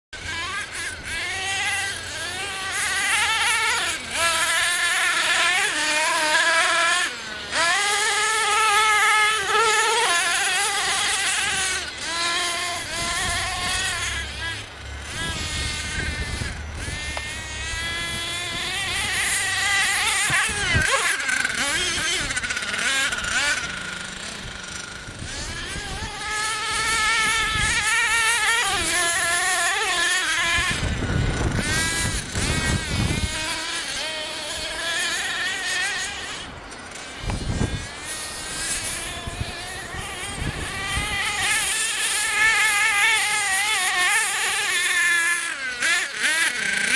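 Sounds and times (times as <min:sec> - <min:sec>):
small nitro engine revving: 0:00.2 - 0:46.9.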